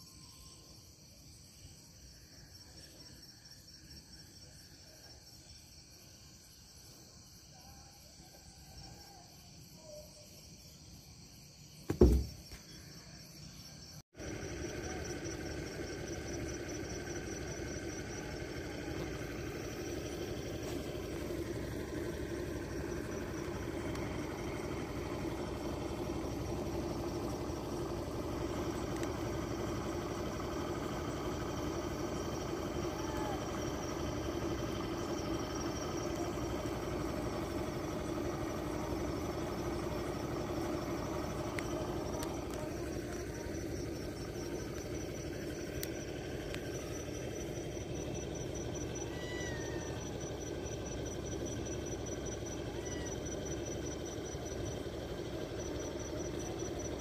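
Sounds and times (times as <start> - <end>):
engine idling: 11.9 - 57.0.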